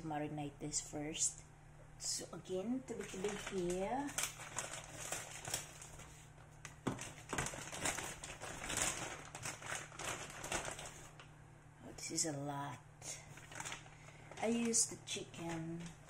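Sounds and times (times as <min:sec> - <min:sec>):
plastic bag crinkling: 0:02.9 - 0:11.3, 0:13.2 - 0:16.0.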